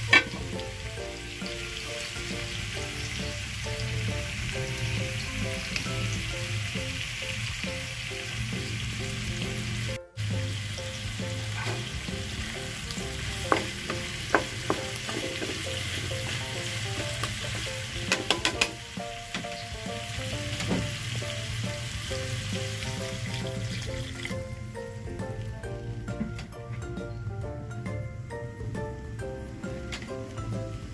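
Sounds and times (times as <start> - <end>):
food sizzling in a pot: 0.0 - 24.6
soft background music: 0.0 - 30.9.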